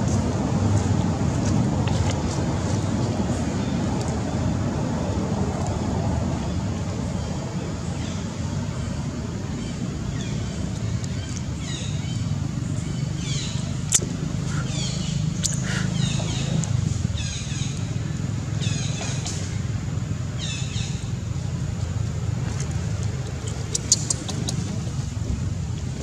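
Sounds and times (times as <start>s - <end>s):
baby monkey squealing: 23.7s - 24.7s.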